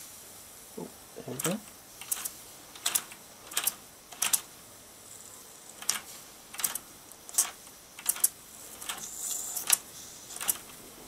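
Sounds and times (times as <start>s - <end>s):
faint steady hiss: 0.0s - 11.0s
sharp metallic clicks: 1.4s - 4.5s, 5.8s - 9.8s.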